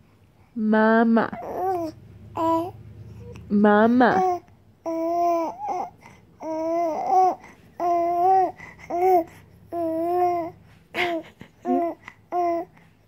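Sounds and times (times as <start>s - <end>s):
baby cooing: 1.3s - 3.4s, 4.1s - 10.6s, 11.7s - 12.7s.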